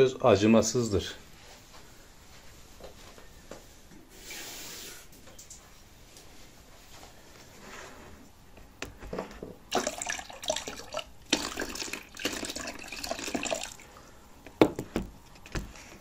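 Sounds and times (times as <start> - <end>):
liquid pouring and splashing: 9.7 - 14.1.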